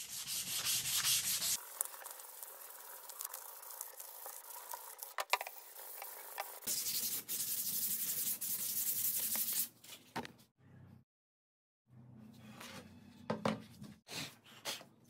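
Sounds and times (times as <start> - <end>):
sandpaper rubbing on wood: 0.0 - 1.6, 5.6 - 9.7.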